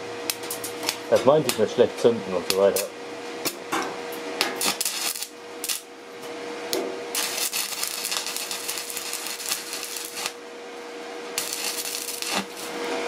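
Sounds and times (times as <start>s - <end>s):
steady hum: 0.0s - 13.0s
welding arc crackling: 4.6s - 5.9s, 7.1s - 10.5s, 11.2s - 13.0s.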